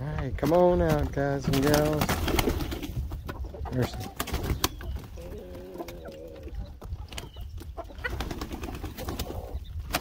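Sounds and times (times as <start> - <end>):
hens calling: 0.9 - 10.0.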